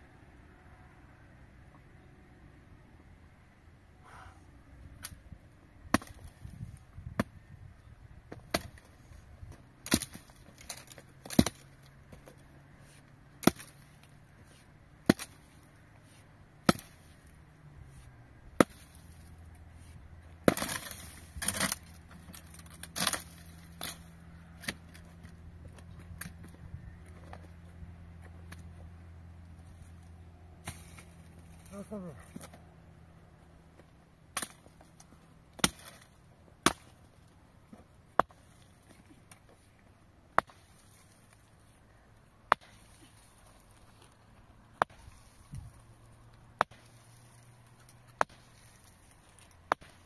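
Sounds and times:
wood being chopped: 5.9 - 7.4, 8.3 - 8.9, 9.8 - 12.4, 13.4 - 13.9, 15.0 - 15.6, 16.6 - 17.2, 18.6 - 19.1, 20.4 - 24.0, 24.6 - 26.6, 34.3 - 34.9, 35.6 - 37.0, 37.7 - 39.5, 40.3 - 40.9, 42.5 - 43.1, 44.8 - 45.7, 46.6 - 47.0, 48.1 - 50.0.

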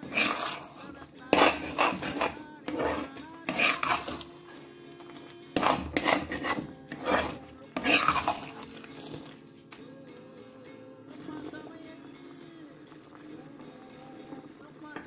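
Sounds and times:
metal spatula scraping pan: 0.0 - 4.8, 5.5 - 9.4.

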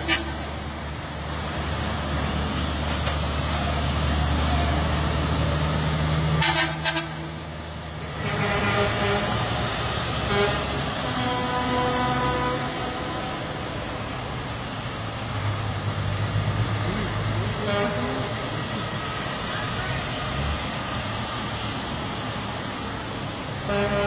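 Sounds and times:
truck horn toots: 0.0 - 0.4, 6.4 - 7.4, 8.1 - 9.5, 10.2 - 13.5, 17.6 - 18.3, 23.6 - 24.0
trucks driving past: 0.0 - 24.0
held pitched horn: 6.4 - 7.3, 8.2 - 9.5, 10.3 - 13.6, 23.6 - 24.0.

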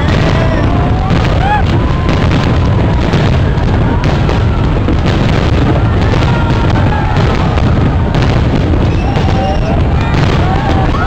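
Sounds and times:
fireworks bursting rumble: 0.0 - 11.0
sharp firework cracks: 0.0 - 11.0.

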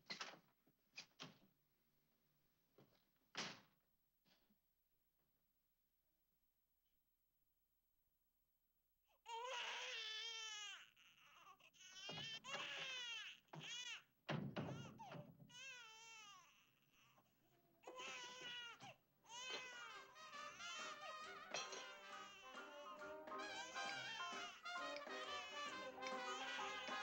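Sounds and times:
baby crying: 9.2 - 14.1, 14.7 - 27.0.

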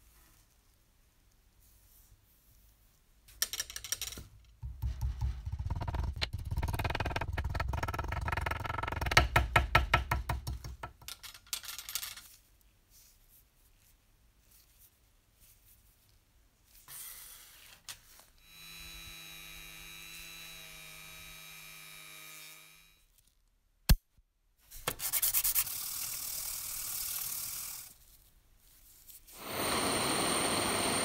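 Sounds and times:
metal rubbing on abrasive paper: 24.8 - 29.4.

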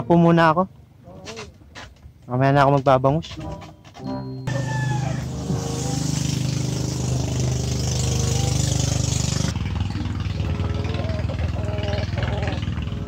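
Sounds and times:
motorcycle engine idling: 4.5 - 13.0
hiss: 5.1 - 9.5.

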